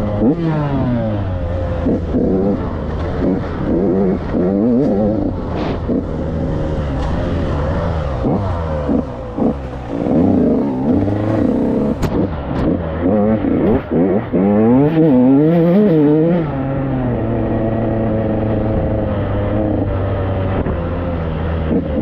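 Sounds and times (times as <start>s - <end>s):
dirt bike engine revving: 0.0s - 16.7s.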